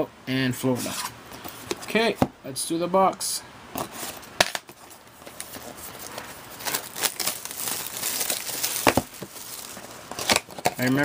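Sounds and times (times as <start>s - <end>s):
plastic wrap crinkling and tearing: 4.4s - 11.0s.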